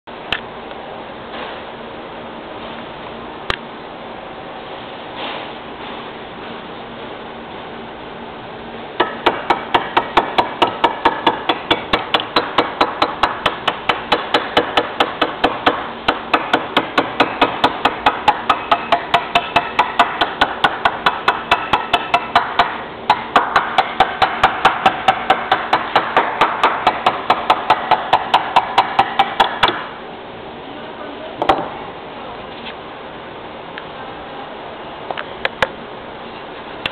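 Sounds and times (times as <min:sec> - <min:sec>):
hammer tapping: 0:09.0 - 0:29.8.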